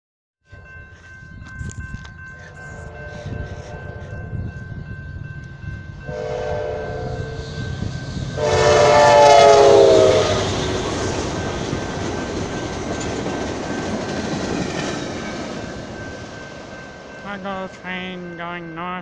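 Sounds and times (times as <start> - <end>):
train cars rushing past: 0.5 - 19.0
train horn blasts: 2.4 - 4.6, 6.0 - 11.2.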